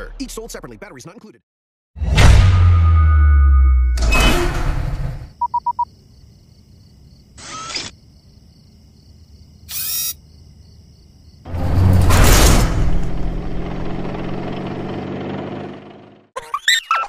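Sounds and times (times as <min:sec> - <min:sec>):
quick electronic beeps: 0:05.4 - 0:05.9.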